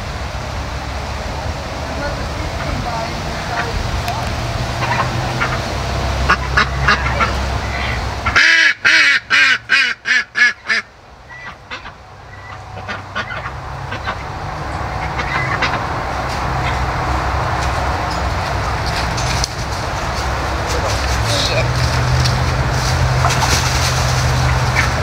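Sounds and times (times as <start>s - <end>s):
chicken squawking: 4.8s - 17.0s, 24.3s - 25.0s
rustling: 16.1s - 25.0s.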